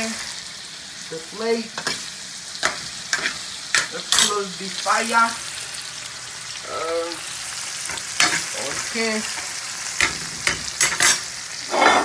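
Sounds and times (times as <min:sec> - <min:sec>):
vegetables sizzling in a frying pan: 0:00.0 - 0:12.0
utensil scraping and clinking on pan: 0:02.6 - 0:04.4, 0:07.9 - 0:12.0.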